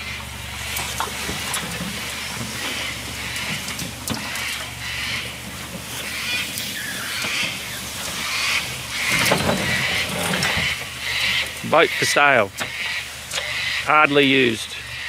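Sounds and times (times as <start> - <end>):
metal boat hull dragging over ground: 0.0 - 13.6
vehicle engine running: 0.0 - 15.0.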